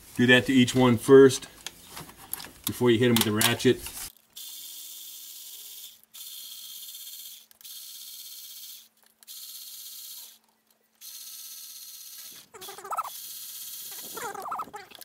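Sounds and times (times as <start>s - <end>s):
cordless electric ratchet bursts: 4.4s - 10.4s, 11.0s - 14.6s.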